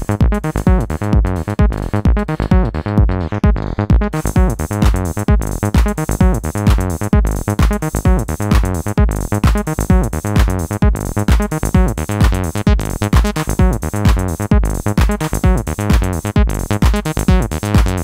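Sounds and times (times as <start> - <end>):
filter-swept synth bass line: 0.0 - 18.0
kick drum: 0.0 - 18.0
hi-hats: 4.1 - 18.0.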